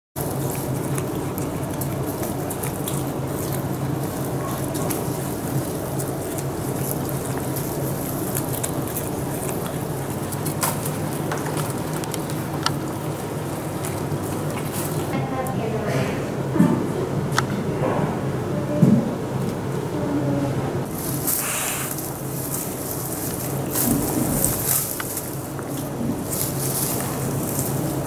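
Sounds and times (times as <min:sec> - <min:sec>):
bamboo rustling: 0:00.2 - 0:15.1, 0:20.9 - 0:28.0
animals scuffling on wood chips: 0:00.2 - 0:15.2, 0:20.9 - 0:28.0
low indoor hum: 0:00.2 - 0:28.0.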